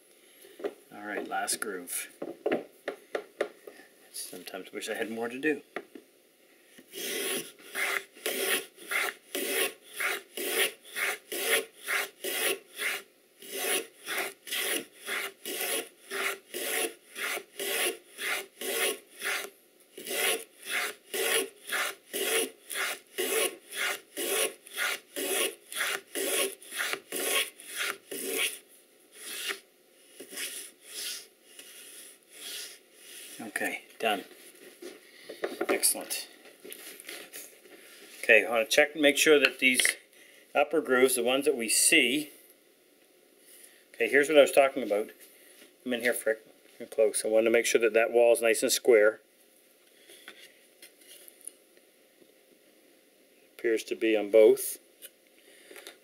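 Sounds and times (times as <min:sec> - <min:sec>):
plane shaving wood: 0:07.0 - 0:28.5.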